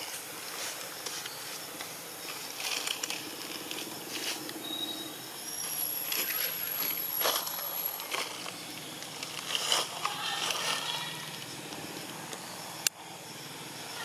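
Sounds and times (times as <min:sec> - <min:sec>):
outdoor background hiss: 0:00.0 - 0:14.0
thin high-pitched whistles: 0:04.6 - 0:08.0.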